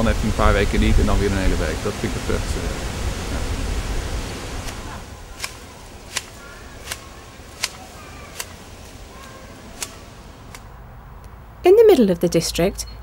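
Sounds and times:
hedge shears snipping: 4.6 - 10.7.

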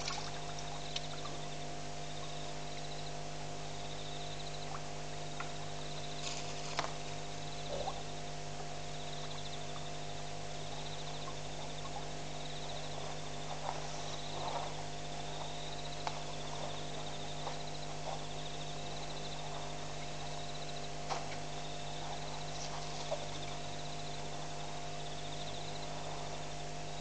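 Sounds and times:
electrical hum: 0.0 - 27.0
soft rustles: 6.2 - 7.1.

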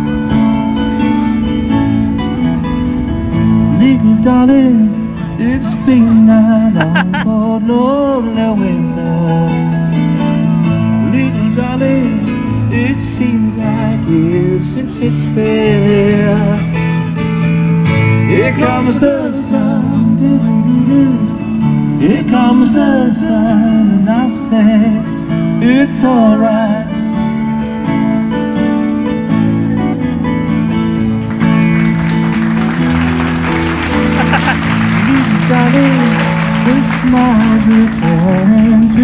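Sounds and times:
strummed acoustic guitar: 0.0 - 39.0
person singing: 3.8 - 9.4, 34.2 - 39.0.

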